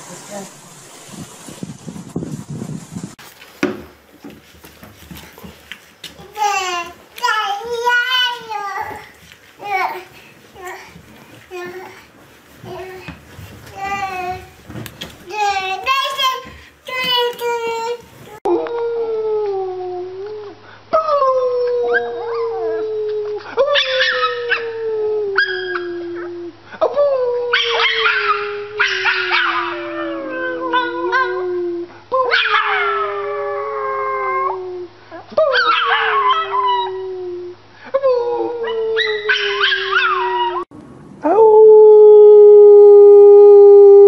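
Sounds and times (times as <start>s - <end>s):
small dog howling: 18.5s - 26.5s, 27.5s - 34.6s, 35.4s - 37.1s, 38.3s - 44.0s.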